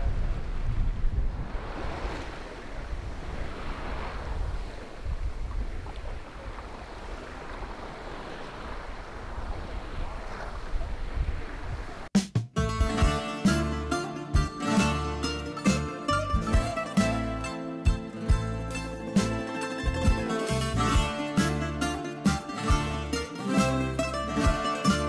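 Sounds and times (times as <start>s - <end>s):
wind buffeting microphone: 0.0s - 12.1s
plucked-string music: 12.5s - 25.0s.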